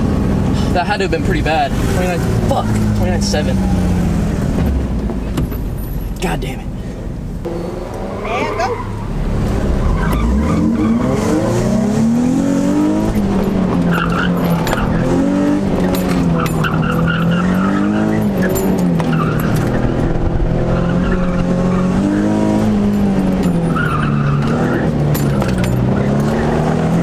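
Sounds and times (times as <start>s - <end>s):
car engine accelerating: 0.0s - 6.2s, 7.2s - 27.0s
tyres squealing: 15.8s - 19.9s, 20.6s - 26.6s.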